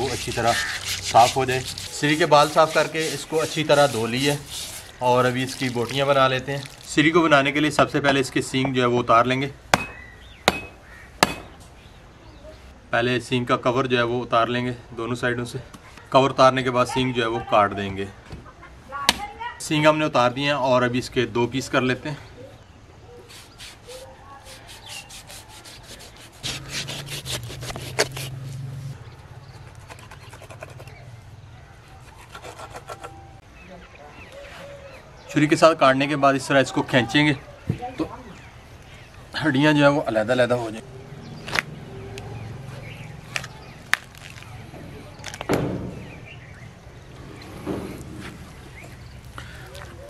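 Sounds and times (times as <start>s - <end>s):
knife sawing through hide: 0.0s - 6.0s, 23.3s - 28.6s, 29.6s - 31.0s, 32.0s - 33.3s
bones cracking apart: 43.3s - 44.6s.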